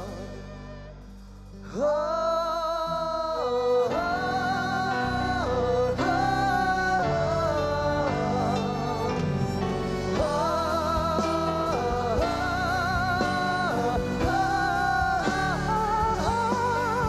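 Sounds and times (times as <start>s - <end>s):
live band playing: 0.0s - 2.0s, 3.5s - 17.0s
men singing long ah notes: 1.6s - 17.0s.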